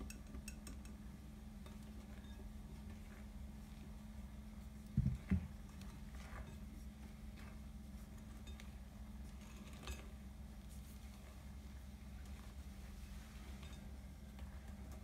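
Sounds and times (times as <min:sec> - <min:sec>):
low steady hum: 0:00.0 - 0:15.0
spoon scraping glass bowl: 0:08.4 - 0:10.2.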